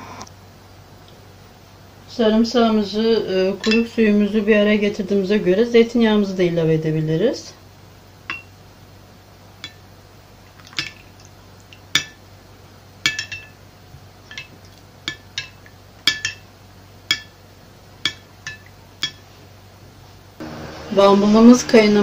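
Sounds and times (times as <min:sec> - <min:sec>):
metal spoon clinking on glass dish: 0:03.6 - 0:03.9, 0:08.3 - 0:08.5, 0:13.1 - 0:13.6, 0:14.3 - 0:16.4, 0:17.1 - 0:17.3, 0:18.0 - 0:19.2.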